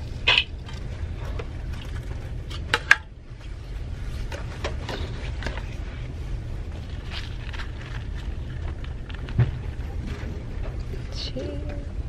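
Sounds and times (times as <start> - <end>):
low rumble: 0.0 - 12.0
plastic rustles and clicks: 6.7 - 11.0.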